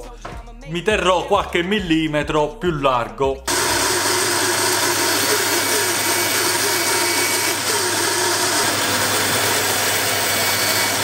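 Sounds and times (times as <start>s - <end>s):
band saw cutting wood: 3.5s - 11.0s.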